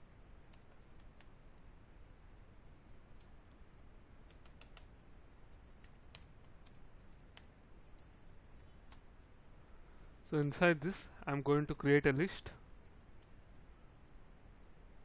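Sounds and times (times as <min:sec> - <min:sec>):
keyboard typing: 0:00.5 - 0:01.3, 0:04.2 - 0:04.9, 0:05.5 - 0:09.0, 0:12.8 - 0:13.7.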